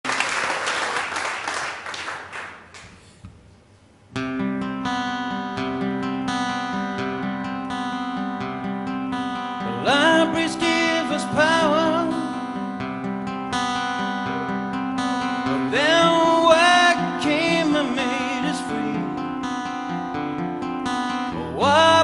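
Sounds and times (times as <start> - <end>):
audience applause: 0.0 - 2.9
acoustic guitar strumming chords: 4.1 - 22.0
man singing: 9.5 - 12.6, 13.8 - 19.4, 21.1 - 22.0.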